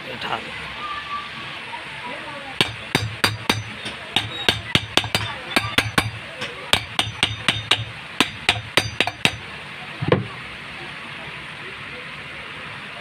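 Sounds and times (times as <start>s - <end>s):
hammer tapping on metal cover: 2.6s - 9.5s.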